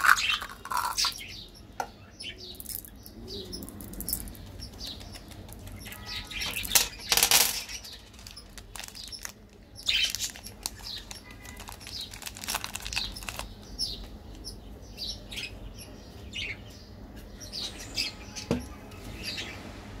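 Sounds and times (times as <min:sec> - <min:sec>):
plastic wrapper rustling and tearing: 0:00.0 - 0:01.2, 0:03.7 - 0:05.8, 0:06.5 - 0:14.1.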